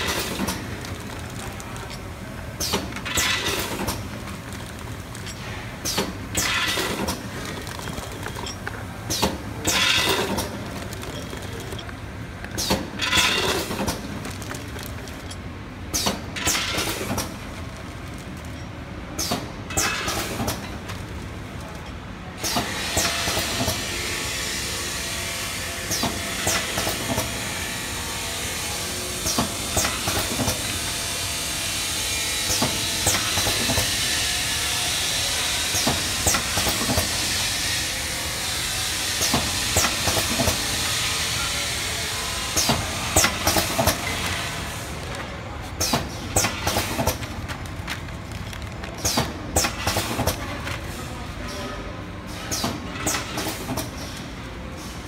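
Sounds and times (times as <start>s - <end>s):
peanuts rattling in hopper: 0.0s - 15.4s, 42.5s - 51.0s
pneumatic cylinders clicking: 0.0s - 17.5s, 19.1s - 20.9s, 38.9s - 41.0s, 42.5s - 44.9s, 45.7s - 48.1s, 48.9s - 50.8s, 52.4s - 55.0s.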